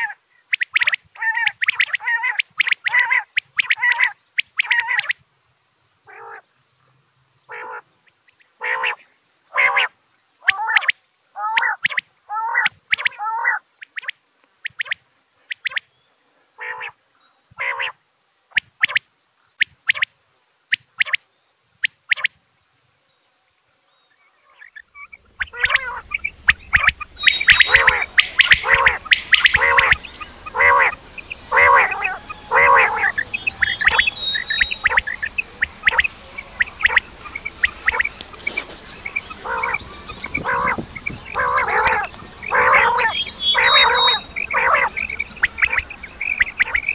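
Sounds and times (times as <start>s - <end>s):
quail calling: 0.0s - 5.2s, 6.1s - 6.5s, 7.5s - 15.9s, 16.6s - 17.0s, 17.6s - 20.1s, 21.8s - 22.4s, 24.4s - 46.9s
background hiss: 0.0s - 46.9s.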